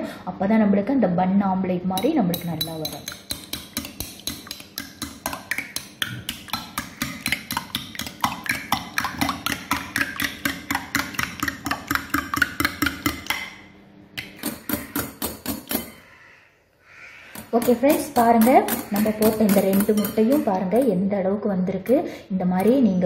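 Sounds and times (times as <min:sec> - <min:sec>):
whisk clicking against glass bowl: 0:02.0 - 0:13.5, 0:17.4 - 0:20.5.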